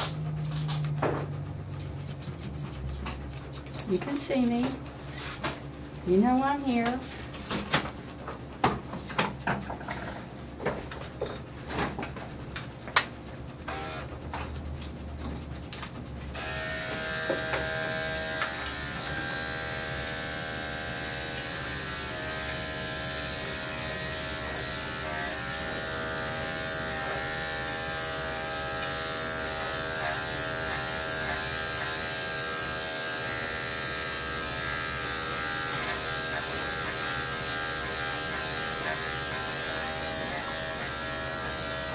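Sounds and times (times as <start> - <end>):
electric clippers humming: 13.6 - 14.2, 16.3 - 41.9.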